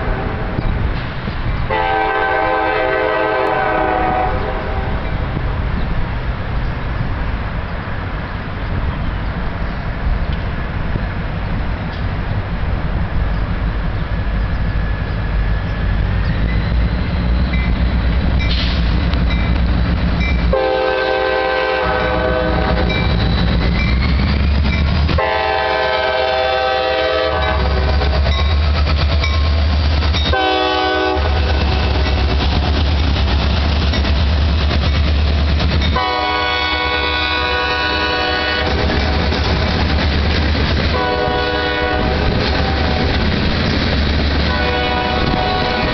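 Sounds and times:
train air horn blasts: 0.0s - 0.8s, 1.7s - 5.2s, 20.4s - 23.2s, 25.1s - 28.3s, 30.2s - 32.4s, 35.9s - 39.4s, 40.9s - 43.2s, 44.5s - 45.9s
locomotive engines rumbling: 0.0s - 45.9s.

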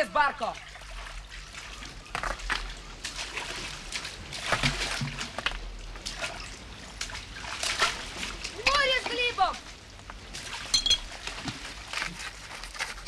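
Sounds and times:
water splashing: 0.0s - 13.0s
small waves washing: 2.6s - 12.5s.

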